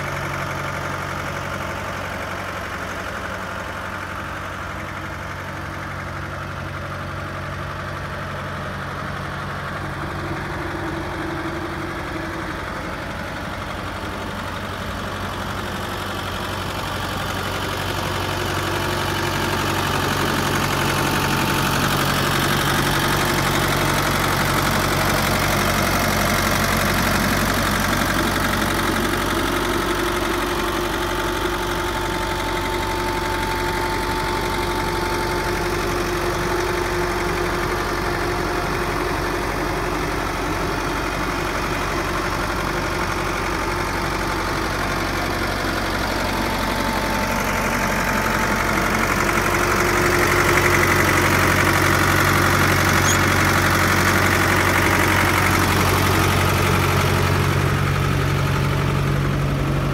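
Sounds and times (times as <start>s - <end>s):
tractor diesel engine idling: 0.0s - 59.9s.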